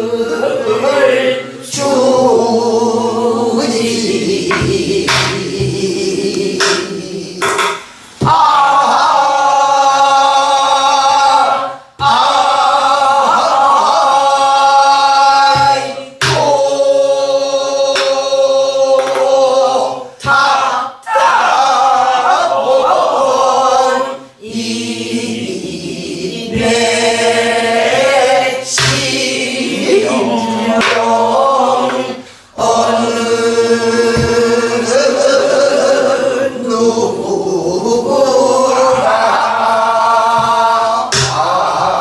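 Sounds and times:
group of voices singing folk song: 0:00.0 - 0:42.0
barrel drum strokes: 0:04.3 - 0:08.6, 0:15.4 - 0:16.8, 0:17.6 - 0:18.4, 0:26.5 - 0:29.9, 0:33.9 - 0:35.0, 0:40.3 - 0:41.8.

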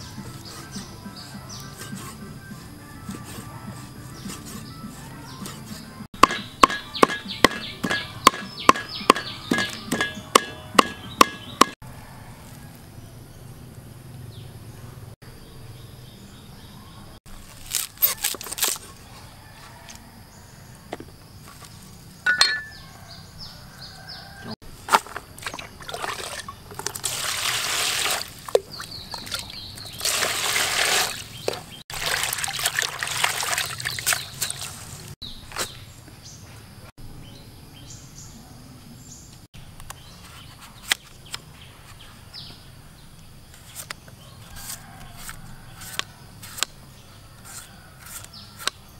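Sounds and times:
cleaver knocking on wooden board: 0:06.2 - 0:11.8
greens sloshing in water: 0:25.4 - 0:35.0.

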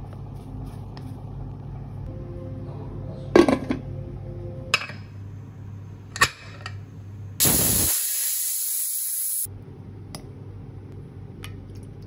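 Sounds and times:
steam hissing from valve: 0:07.4 - 0:09.5.

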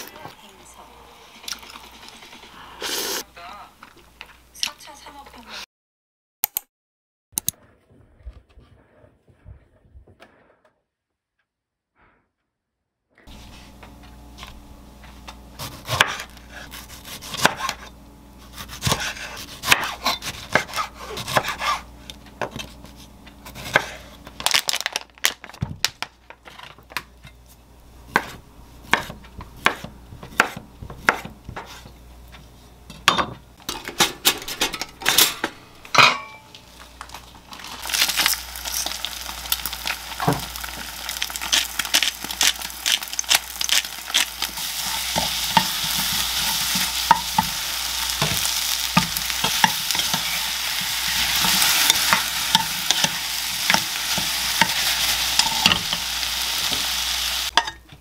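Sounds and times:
food sizzling in frying pan: 0:00.0 - 0:03.2, 0:36.6 - 0:57.7.

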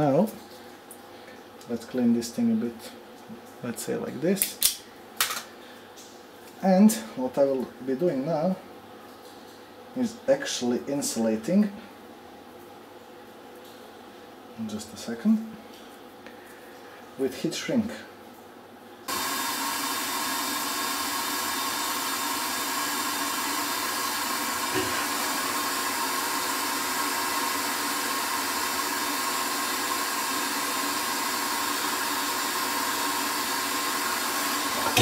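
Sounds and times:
heat gun blowing: 0:19.1 - 0:35.0.

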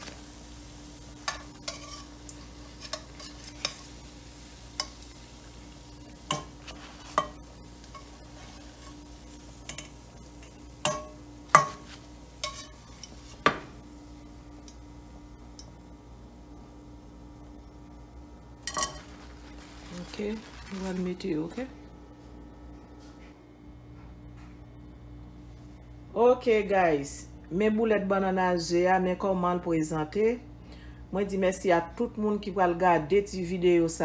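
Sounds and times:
oil sizzling: 0:00.0 - 0:15.8, 0:17.4 - 0:21.7
utensils clinking on frying pan: 0:01.2 - 0:03.9, 0:06.3 - 0:09.0, 0:09.6 - 0:13.4, 0:18.6 - 0:19.3.

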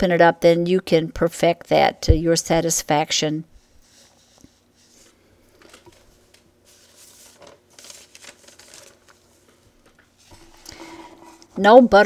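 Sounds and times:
ink sponge on paper: 0:03.5 - 0:05.1
cardstock rustling and scraping: 0:03.6 - 0:11.6.

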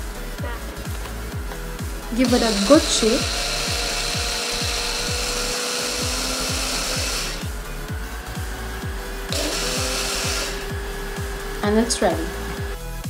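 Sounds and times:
background music: 0:00.0 - 0:13.0
blender motor running: 0:00.6 - 0:13.0.

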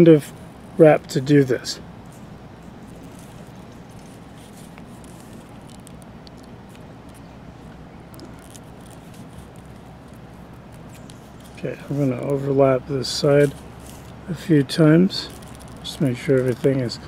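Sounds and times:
low background hum: 0:00.0 - 0:17.0
leather lace ticks and rustles: 0:02.1 - 0:07.3, 0:08.1 - 0:12.5, 0:13.2 - 0:14.2, 0:15.3 - 0:17.0.

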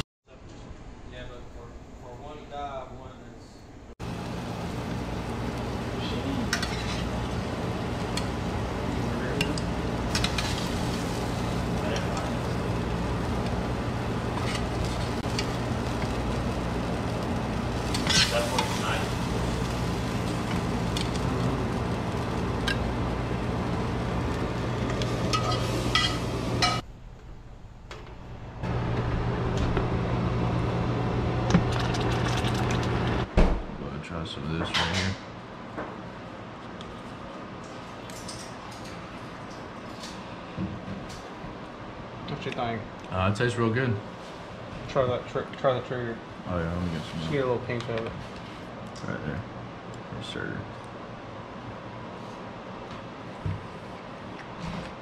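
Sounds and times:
fish sizzling in a pan: 0:04.0 - 0:26.8
low hum: 0:04.0 - 0:33.3.

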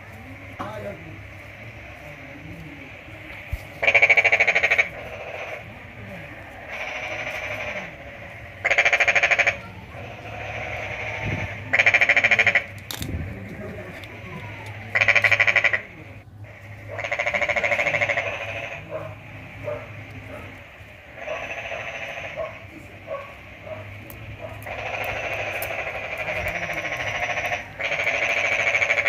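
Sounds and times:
animal rattling calls: 0:00.6 - 0:29.0
wires and clamps clicking: 0:12.7 - 0:13.2.

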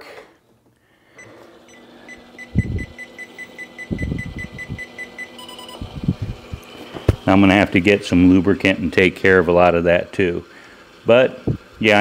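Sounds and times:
steady electronic tone: 0:01.2 - 0:07.4
rapid electronic beeping: 0:01.7 - 0:05.9
short low rumbles: 0:05.8 - 0:07.3.

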